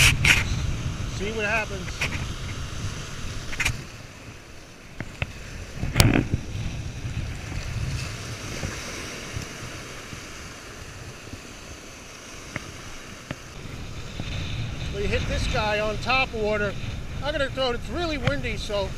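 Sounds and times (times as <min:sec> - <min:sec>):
strong wind on microphone: 0:00.0 - 0:11.8, 0:12.5 - 0:18.9
waves breaking: 0:00.0 - 0:18.9.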